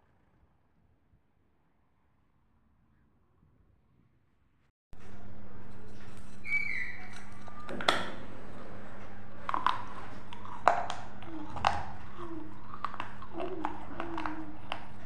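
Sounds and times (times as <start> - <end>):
chewing crackles and mouth sounds: 9.0 - 15.0.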